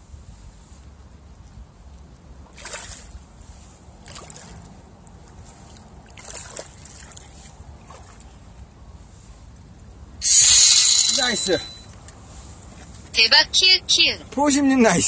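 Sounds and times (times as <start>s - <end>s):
fish splashing in water: 2.5s - 3.2s, 4.0s - 8.2s.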